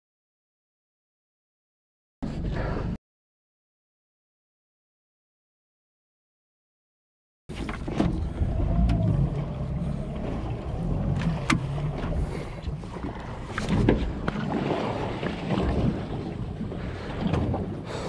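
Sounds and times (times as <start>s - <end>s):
water rumbling against boat hull: 7.5s - 18.0s
wind buffeting microphone: 7.8s - 18.0s.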